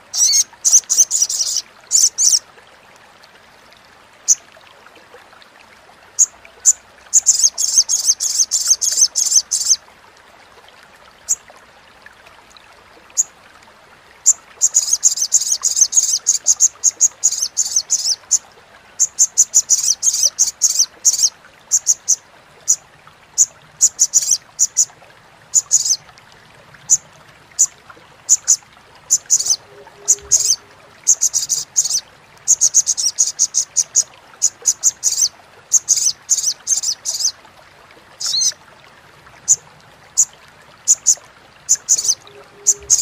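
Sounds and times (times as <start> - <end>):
bird high-pitched chattering call: 0.1 - 2.4, 7.2 - 9.8, 14.6 - 18.2, 19.0 - 22.8, 23.4 - 24.9, 25.6 - 26.0, 28.3 - 37.3, 38.2 - 38.5, 40.9 - 43.0.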